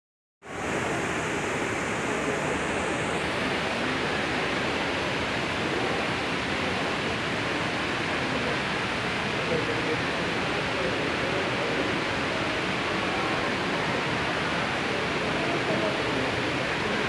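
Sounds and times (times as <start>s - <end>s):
fountain water splashing: 0.5s - 17.0s.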